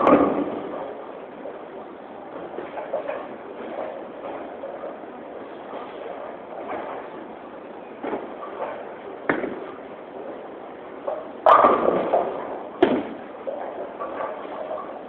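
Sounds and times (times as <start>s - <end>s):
bowling pins crashing: 0.0s - 1.0s, 8.0s - 9.8s, 11.1s - 15.0s
bowling balls rolling: 0.0s - 15.0s
knocks of balls and pins: 8.0s - 9.8s, 11.1s - 14.7s.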